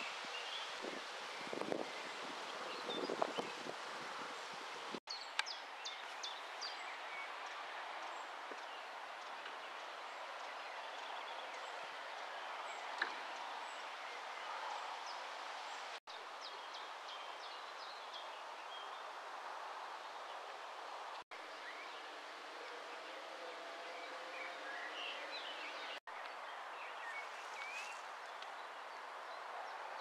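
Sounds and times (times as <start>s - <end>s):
outdoor background noise: 0.0s - 30.0s
small birds chirping: 23.8s - 30.0s.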